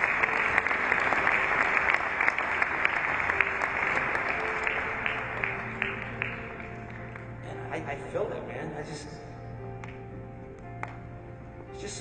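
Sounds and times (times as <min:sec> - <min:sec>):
audience applauding: 0:00.0 - 0:07.5
faint background music: 0:00.0 - 0:12.0.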